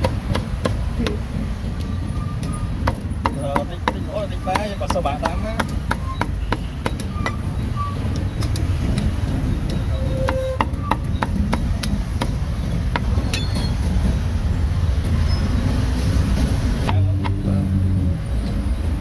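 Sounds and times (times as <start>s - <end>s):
cleaver chopping on a block: 0.0s - 1.2s, 2.8s - 7.1s, 16.8s - 17.5s
street traffic rumble: 0.0s - 19.0s.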